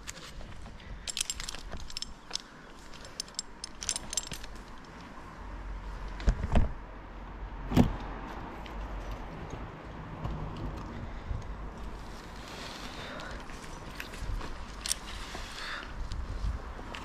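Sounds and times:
metal hardware clinking: 0:00.9 - 0:05.1.

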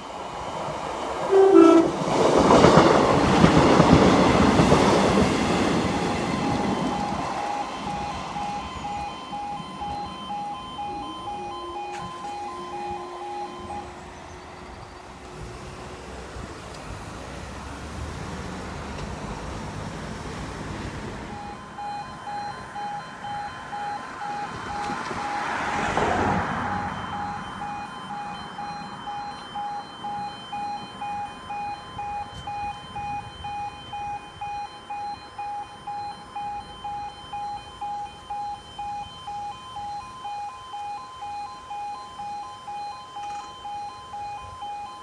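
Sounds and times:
road vehicle passing: 0:00.0 - 0:34.1
level crossing alarm beeping: 0:00.1 - 0:15.9, 0:21.2 - 0:45.0.

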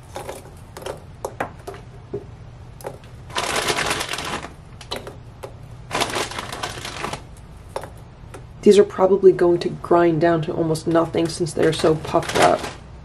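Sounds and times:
cheese balls tapping in plastic bowl: 0:00.0 - 0:08.6
rustling: 0:02.8 - 0:08.0, 0:11.2 - 0:12.9.

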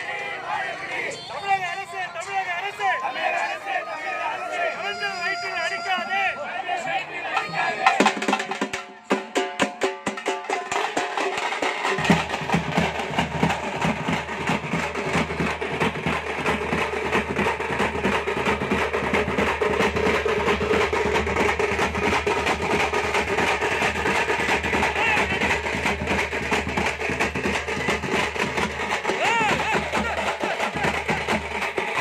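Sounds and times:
drums beaten with sticks: 0:07.3 - 0:32.0.

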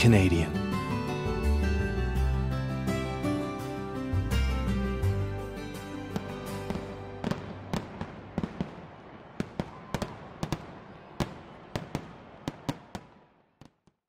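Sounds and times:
fireworks crackle: 0:06.2 - 0:13.9
fireworks bangs: 0:06.2 - 0:14.0.

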